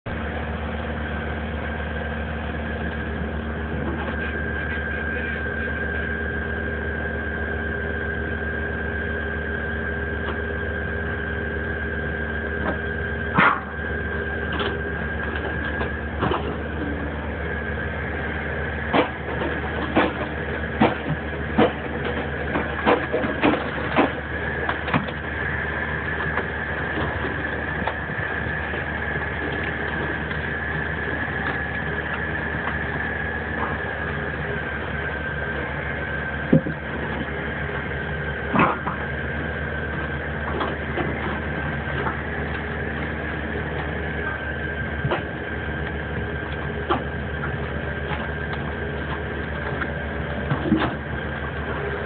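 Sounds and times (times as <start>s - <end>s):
engine running: 0.0s - 52.0s
hydraulic whine: 0.1s - 52.0s
sharp knocks and cracks of logs: 18.9s - 25.2s, 36.5s - 37.3s, 50.5s - 51.1s.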